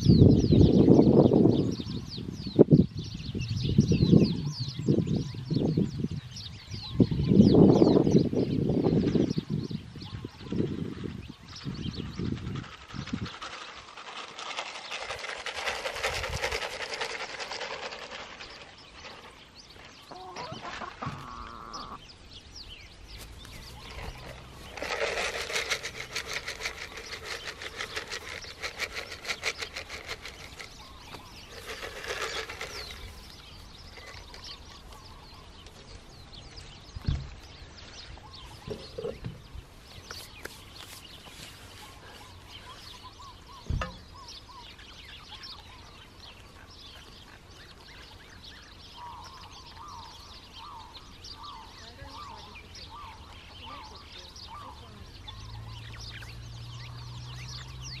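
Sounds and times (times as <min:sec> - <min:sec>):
pecking and scratching in grass: 0:10.5 - 0:21.5, 0:23.1 - 0:36.8, 0:37.4 - 0:57.6
hens clucking: 0:20.0 - 0:22.0.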